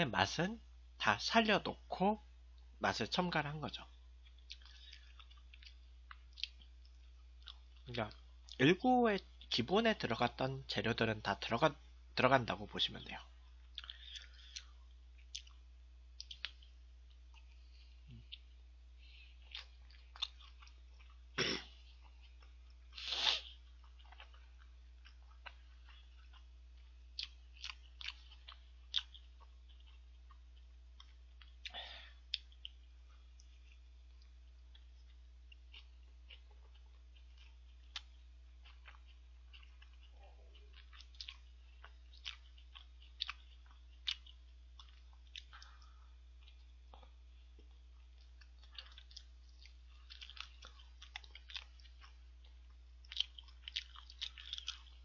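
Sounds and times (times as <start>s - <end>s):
faint steady hum: 0.0s - 55.0s
wet chewing mouth sounds: 13.6s - 15.6s, 19.3s - 32.8s, 33.4s - 55.0s.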